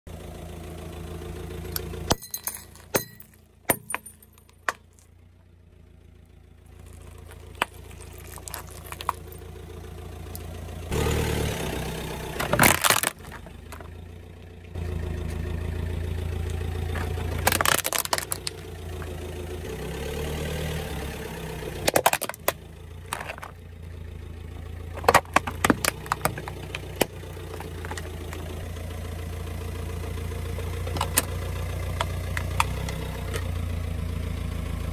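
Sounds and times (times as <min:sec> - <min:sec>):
car engine idling: 0:00.1 - 0:34.9
objects cracking under a tyre: 0:01.7 - 0:05.3, 0:06.6 - 0:10.6, 0:12.3 - 0:14.6, 0:16.4 - 0:19.3, 0:21.8 - 0:28.9, 0:30.7 - 0:33.6.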